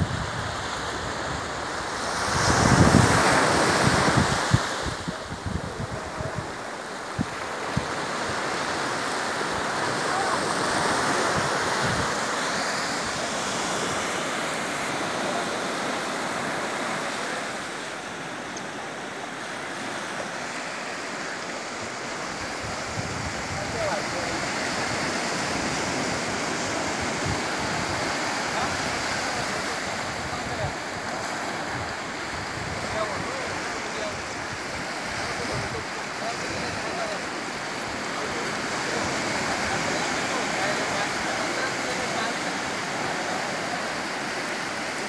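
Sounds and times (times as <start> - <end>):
wind buffeting microphone: 0.0 - 8.2, 11.2 - 12.4
waves washing up a beach: 0.0 - 45.0.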